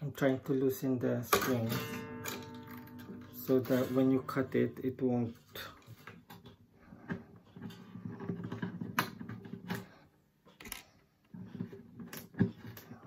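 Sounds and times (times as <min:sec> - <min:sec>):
guitar handling clicks: 0:01.3 - 0:04.8
slack guitar strings buzzing: 0:01.3 - 0:05.4.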